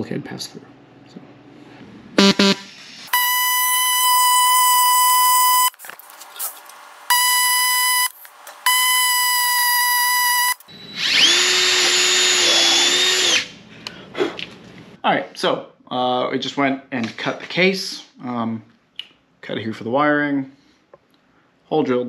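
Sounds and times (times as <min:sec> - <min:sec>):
cordless drill boring metal: 0:08.7 - 0:13.5.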